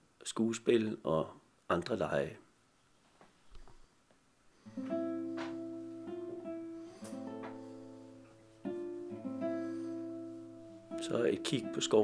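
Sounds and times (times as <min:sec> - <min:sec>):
plucked acoustic guitar: 0:04.7 - 0:12.0.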